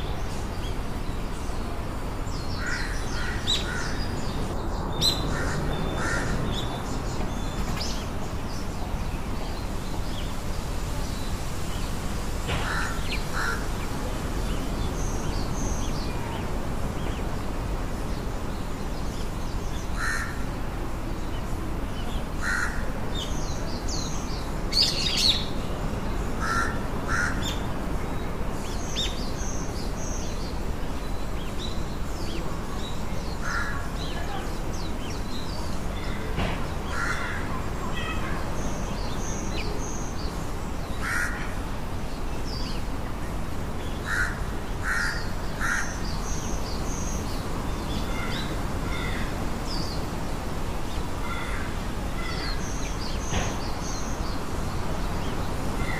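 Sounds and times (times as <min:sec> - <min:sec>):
small birds chirping: 0:00.0 - 0:55.9
crow cawing: 0:05.3 - 0:06.4, 0:12.6 - 0:13.6, 0:20.0 - 0:20.4, 0:22.4 - 0:22.8, 0:26.4 - 0:27.5, 0:36.9 - 0:37.5, 0:41.0 - 0:41.5, 0:44.0 - 0:46.0, 0:51.2 - 0:52.6.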